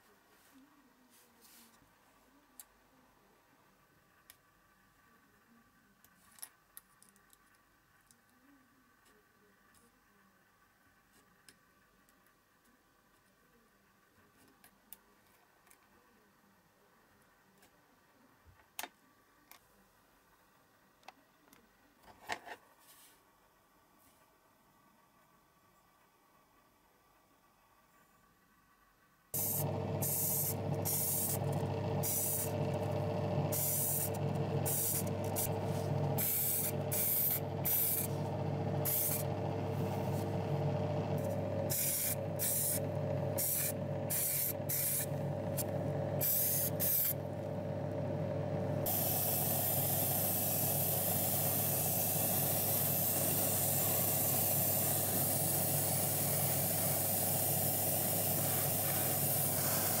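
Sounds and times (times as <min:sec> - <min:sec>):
airbrush hissing: 0:29.4 - 0:45.6, 0:46.2 - 0:47.2, 0:48.8 - 1:00.0
steady motor hum: 0:29.4 - 1:00.0.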